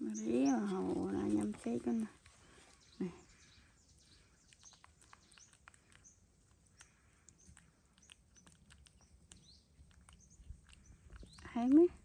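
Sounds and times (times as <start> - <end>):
monkey chewing clicks: 4.0 - 12.0.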